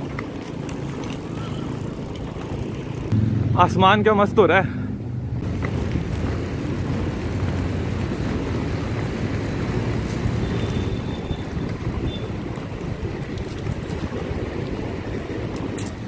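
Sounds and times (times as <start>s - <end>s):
skate wheels rolling on asphalt: 0.0s - 3.2s, 5.4s - 16.0s
wind buffeting microphone: 5.4s - 16.0s.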